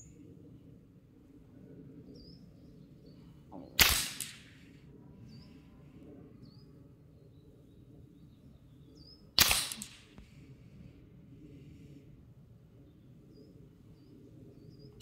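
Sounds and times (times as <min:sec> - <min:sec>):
rifle shots: 0:03.8 - 0:04.7, 0:09.4 - 0:10.2.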